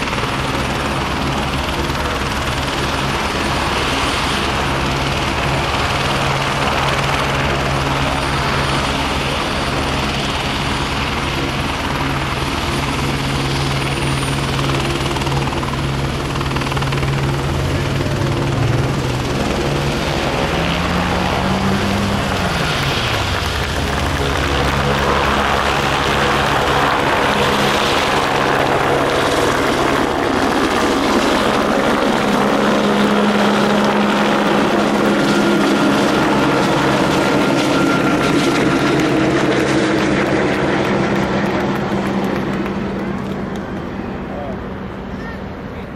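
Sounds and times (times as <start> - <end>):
helicopter engine and rotors drone: 0.0 - 45.9.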